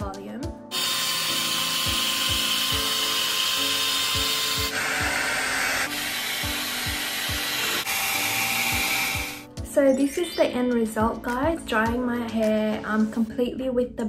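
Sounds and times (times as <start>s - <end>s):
hair dryer brush blowing air: 0.7s - 9.4s
background music with beat: 8.7s - 13.4s.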